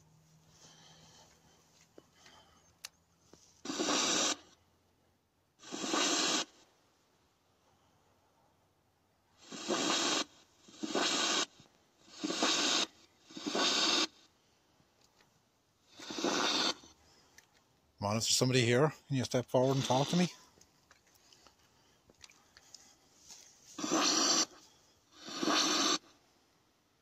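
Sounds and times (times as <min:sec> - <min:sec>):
bursts of radio static hiss: 0:18.2 - 0:20.4.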